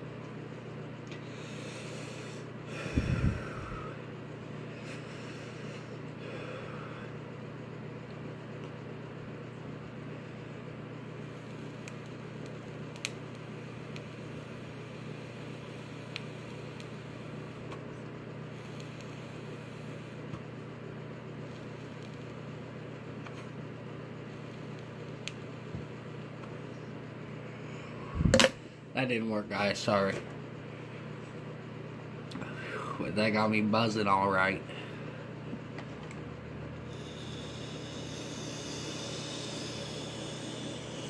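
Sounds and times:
steady low hum: 0.0 - 41.0
even hiss: 36.9 - 41.0.

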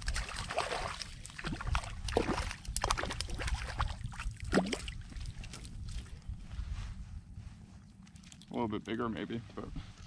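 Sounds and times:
fish splashing at water surface: 0.0 - 5.6.

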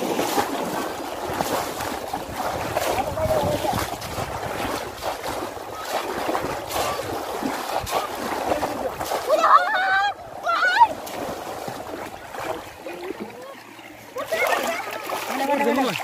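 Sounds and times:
sharp water splashes: 0.0 - 16.0
water washing: 0.0 - 16.0.

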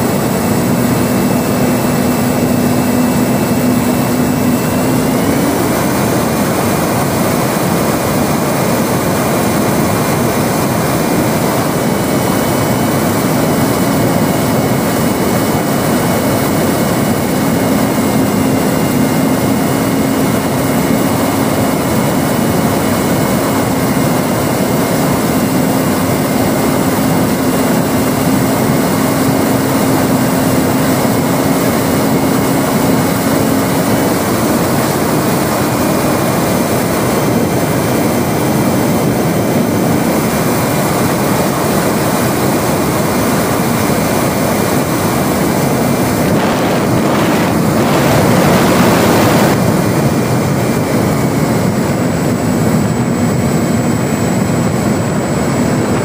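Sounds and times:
model plane motor whine: 0.0 - 56.0
rushing air: 0.0 - 56.0.

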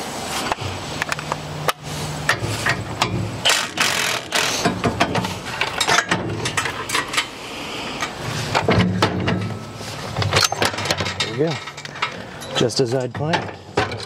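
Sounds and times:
cordless power driver buzzing: 3.5 - 4.6.

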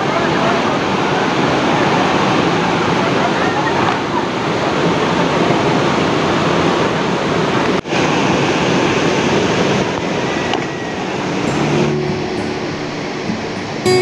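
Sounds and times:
rushing river water: 0.0 - 14.0.

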